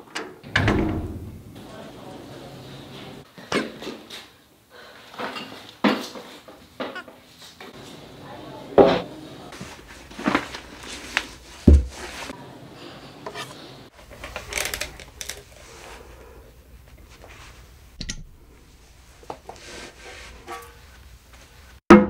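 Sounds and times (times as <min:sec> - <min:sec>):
low thud: 0:00.5 - 0:01.6.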